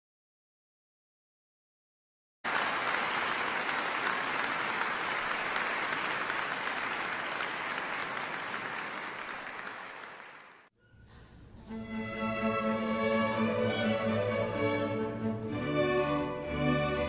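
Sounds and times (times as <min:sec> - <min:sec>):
audience applauding: 0:02.5 - 0:10.7.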